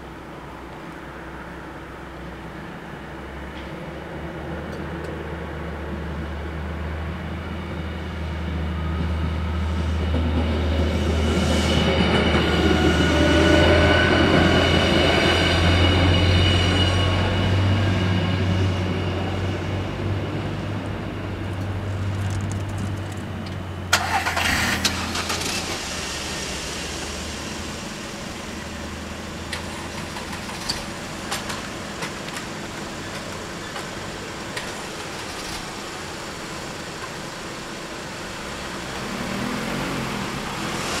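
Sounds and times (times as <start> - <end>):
car engine idling: 20.9 - 39.2
loud burst of noise: 23.9 - 30.6
car engine speeding up: 38.8 - 41.0.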